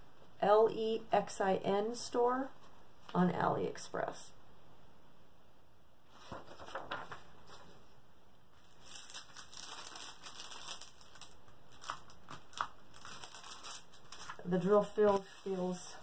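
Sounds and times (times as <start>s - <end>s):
plastic film crinkling: 8.5s - 16.0s.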